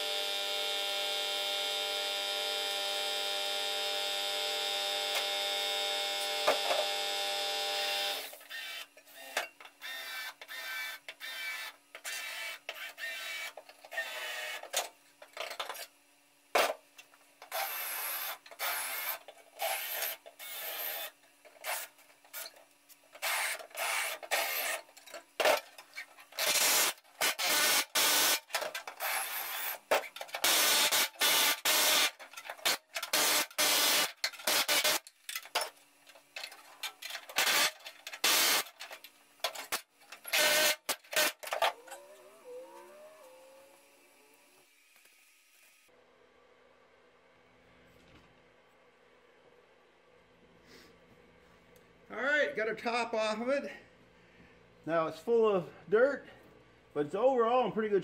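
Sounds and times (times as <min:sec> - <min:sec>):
air hammer cutting sheet metal: 0:30.4 - 0:35.1.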